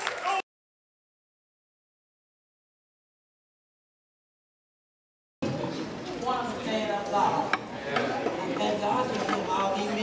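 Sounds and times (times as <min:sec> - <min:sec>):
congregation applauding: 0:00.0 - 0:00.4.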